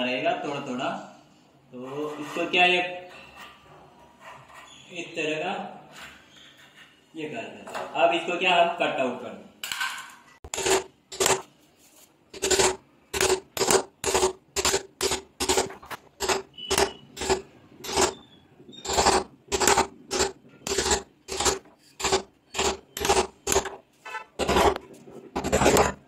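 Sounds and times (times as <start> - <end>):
hammer striking a chisel: 12.4 - 18.2, 18.8 - 23.8.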